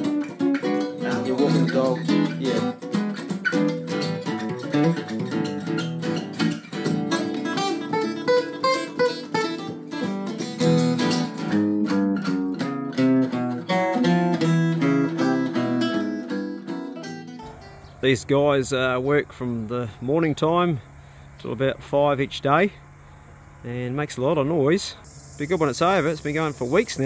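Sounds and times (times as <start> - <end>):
classical guitars playing: 0.0 - 17.8.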